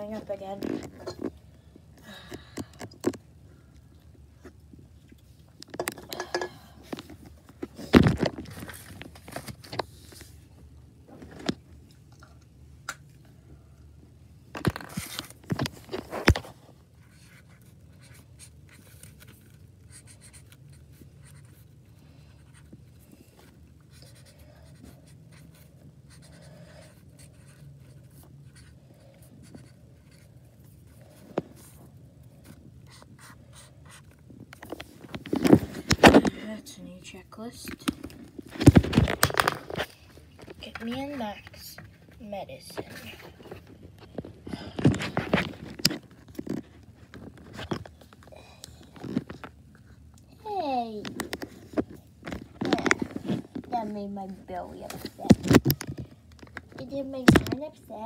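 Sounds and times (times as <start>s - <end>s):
objects knocking and clattering: 5.6s - 9.1s
marker scratching on paper: 17.0s - 18.9s, 19.8s - 21.6s, 23.9s - 30.4s, 32.9s - 34.1s.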